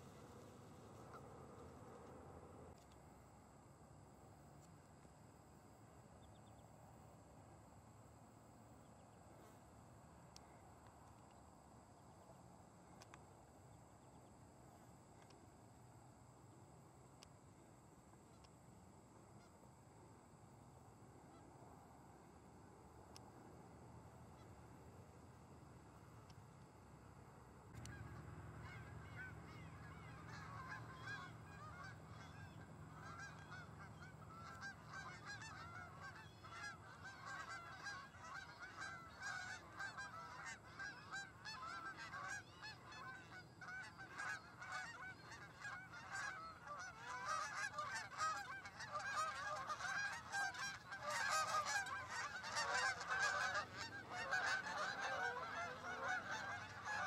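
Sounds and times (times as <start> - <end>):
geese honking in flight: 27.8 - 57.0.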